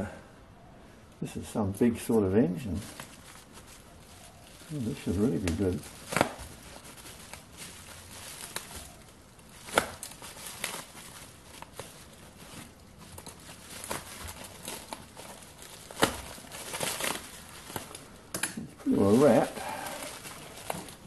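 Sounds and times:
bubble wrap crinkling and tearing: 1.9 - 21.0.

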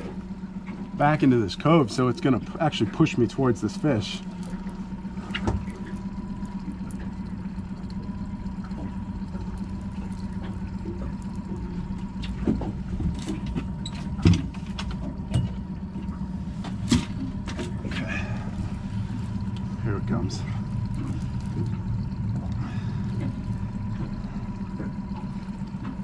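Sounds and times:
outboard motor running: 0.0 - 26.0
knocks on boat: 5.3 - 5.8, 12.3 - 15.6.

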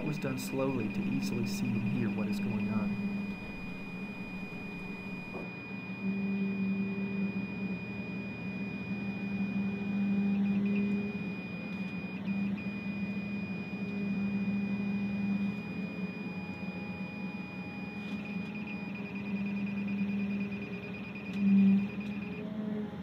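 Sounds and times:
high beeper tone and short beeps: 0.0 - 13.8
excavator engine and hydraulics: 0.0 - 23.0.

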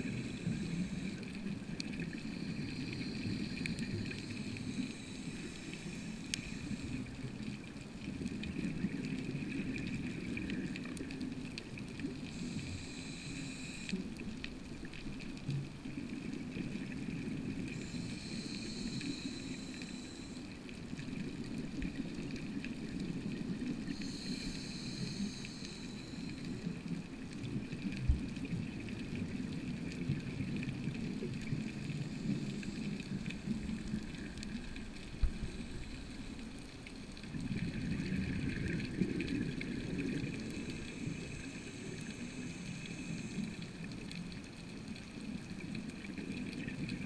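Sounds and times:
hiss: 0.0 - 7.5, 12.2 - 14.2, 17.6 - 20.6, 23.5 - 26.9, 31.5 - 36.5, 37.8 - 44.0
faint high whine: 0.0 - 10.8, 11.8 - 14.8, 16.3 - 44.0
underwater water noise: 0.0 - 47.0.

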